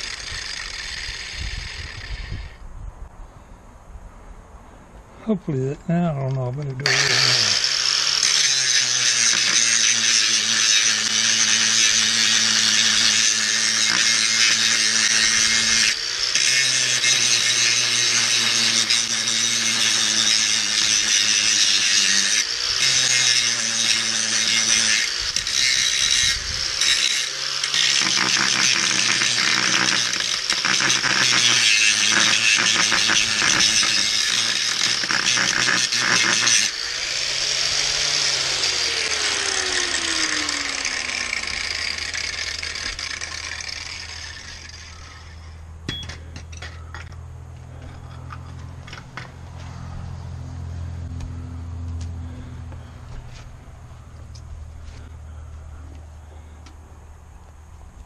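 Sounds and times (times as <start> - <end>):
angle grinder grinding steel: 0.0 - 2.6, 5.5 - 55.1.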